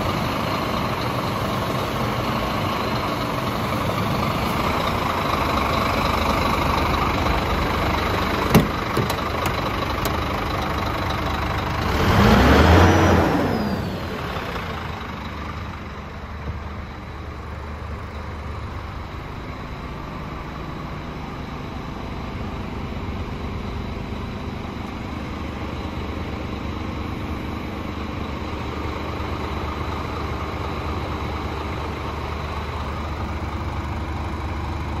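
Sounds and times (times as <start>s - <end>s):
truck diesel engine idling: 0.0s - 35.0s
engine revving: 11.6s - 14.9s.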